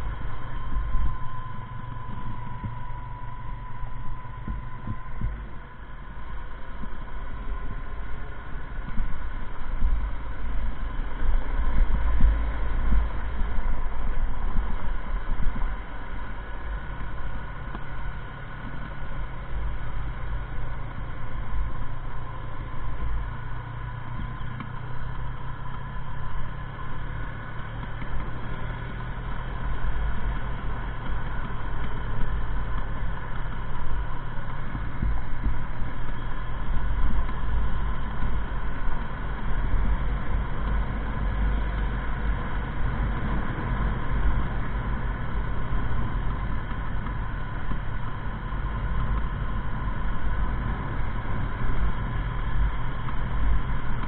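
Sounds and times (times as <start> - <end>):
motorcycle engine running: 0.0 - 54.0
wind rumbling on microphone: 0.0 - 54.0.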